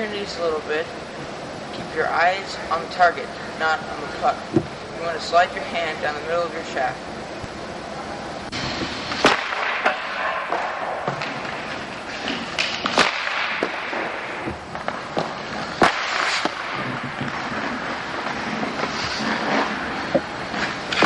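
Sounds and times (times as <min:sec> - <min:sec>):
hockey stick cracking on puck: 0:08.7 - 0:21.0.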